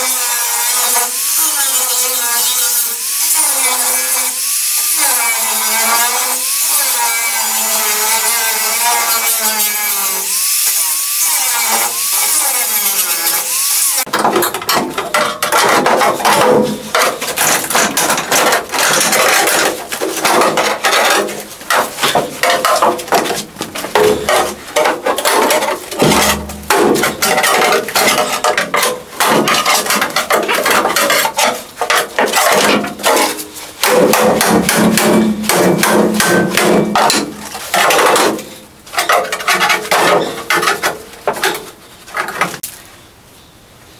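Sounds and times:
angle grinder cutting metal: 0.0s - 40.9s
air chisel hammering metal: 25.2s - 38.5s.

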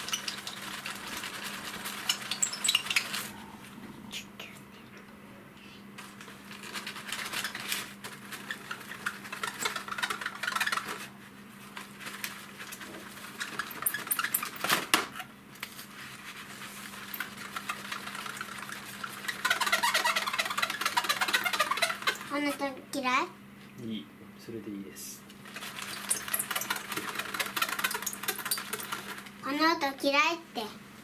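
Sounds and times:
faint low hum: 0.4s - 10.7s
hands scraping plastic model parts: 6.6s - 11.1s, 17.0s - 22.6s.

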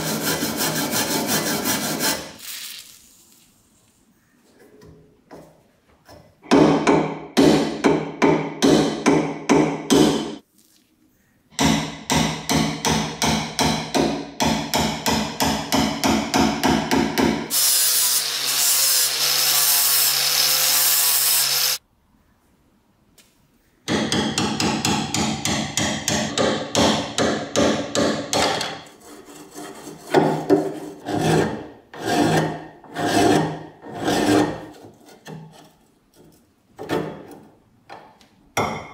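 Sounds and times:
file rasping on iron: 0.0s - 2.4s, 28.8s - 35.8s
angle grinder on metal: 17.5s - 21.8s.

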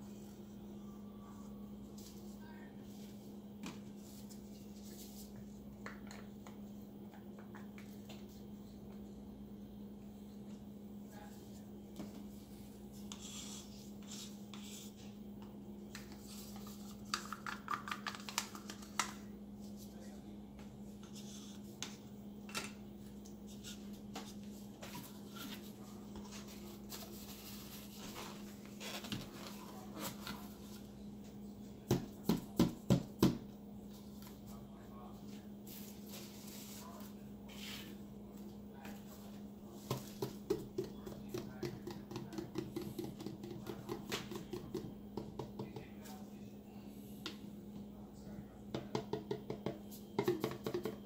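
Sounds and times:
wooden sticks and plastic cups clicking: 17.0s - 19.2s
hand tapping plastic cup: 39.9s - 45.9s, 48.7s - 51.0s.

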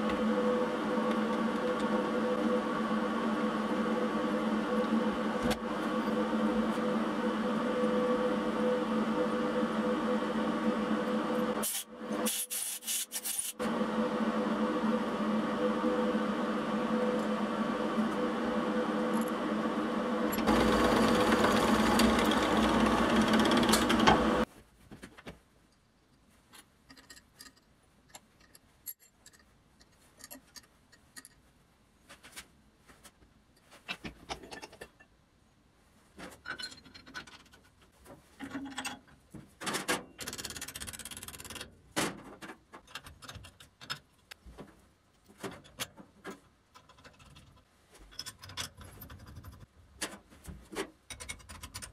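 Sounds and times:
machine running loudly: 13.6s - 24.4s
clicks and knocks of parts: 24.9s - 31.4s, 36.2s - 51.9s.

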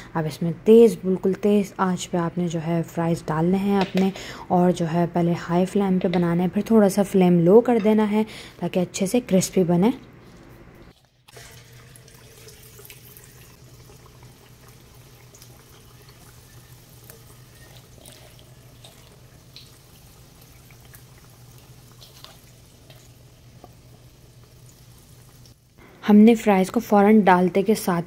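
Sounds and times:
fries sizzling in hot oil: 11.1s - 25.8s
crackles: 13.5s - 25.8s.

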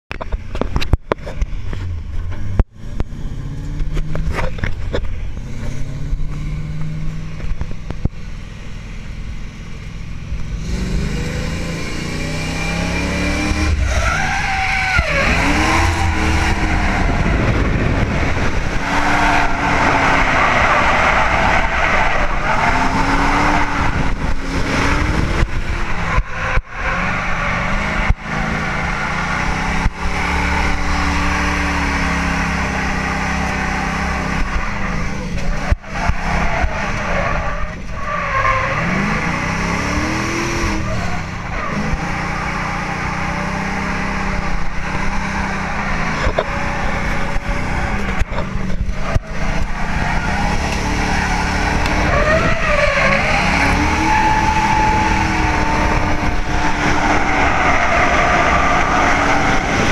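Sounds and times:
car engine revving: 0.4s - 59.9s
tyres squealing: 13.5s - 17.7s, 47.9s - 59.9s.

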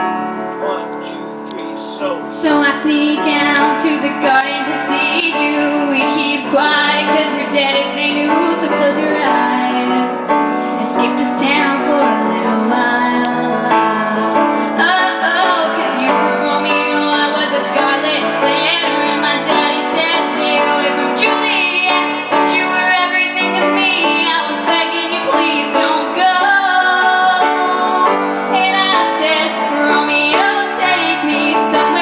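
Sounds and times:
piano accompaniment: 0.0s - 32.0s
woman singing: 2.3s - 32.0s.

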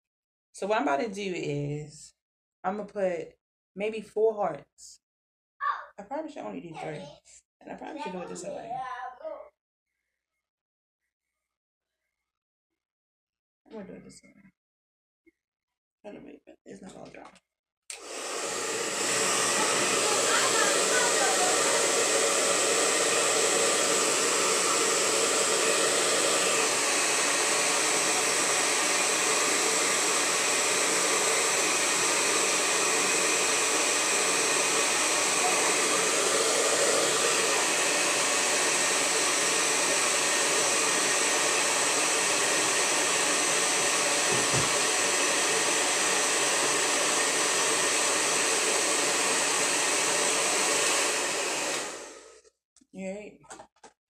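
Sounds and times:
hair dryer blowing: 17.9s - 52.4s.

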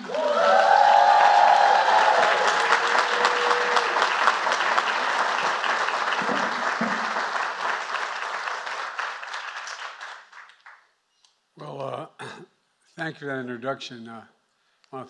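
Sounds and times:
audience applauding: 0.0s - 10.9s.

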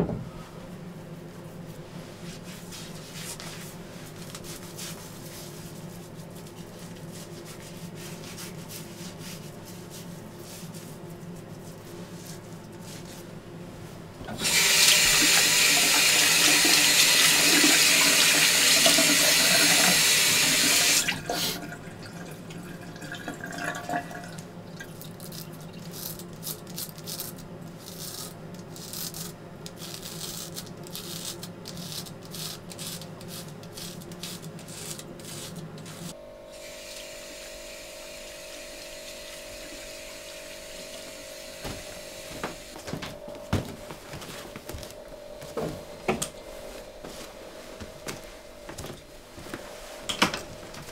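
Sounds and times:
razor scraping over face: 25.8s - 36.1s.

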